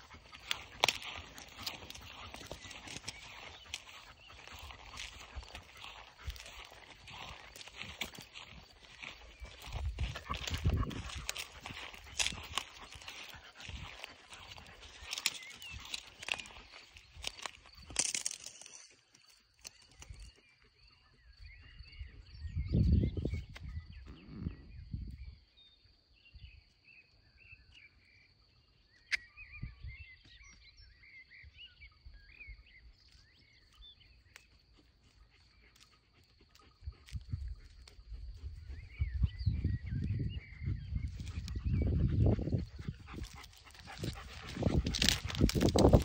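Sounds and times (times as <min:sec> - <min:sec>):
small birds chirping: 0:00.0 - 0:46.0
rustles and clicks: 0:43.2 - 0:46.0.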